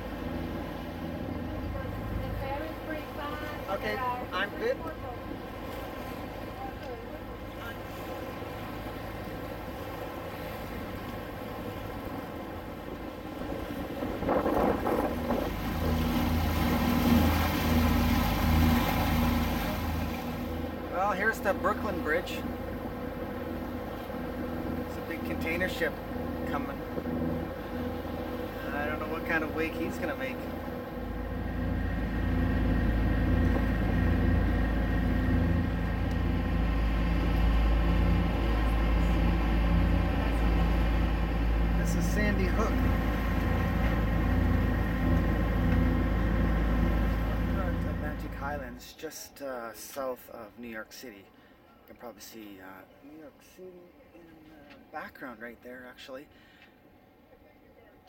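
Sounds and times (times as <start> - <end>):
boat engine humming: 0.0 - 49.4
wind gusts on microphone: 13.4 - 16.8.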